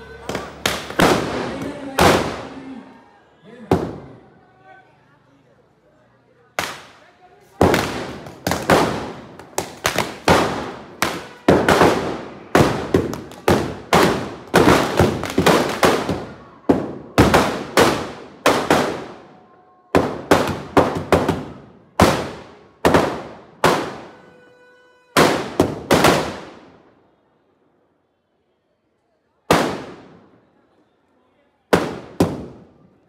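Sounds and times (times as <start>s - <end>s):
firecrackers banging: 0.0s - 3.0s, 3.6s - 4.3s, 6.6s - 24.4s, 25.2s - 26.8s, 29.5s - 30.4s, 31.7s - 33.0s.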